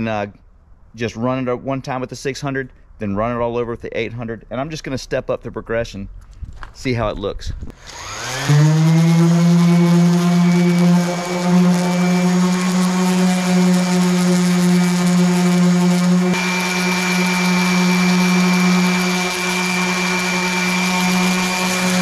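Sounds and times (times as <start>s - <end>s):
orbital sander running: 7.7s - 22.0s
thin high whine: 10.5s - 22.0s.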